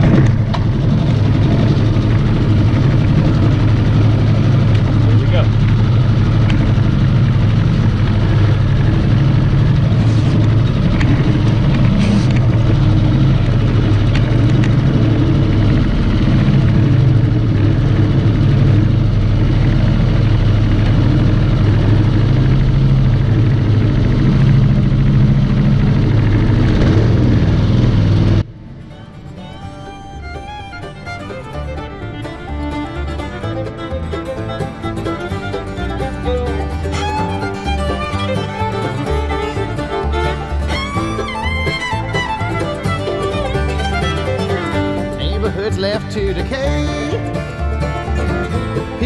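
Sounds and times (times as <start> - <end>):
boat motor running steadily: 0.0 - 49.0.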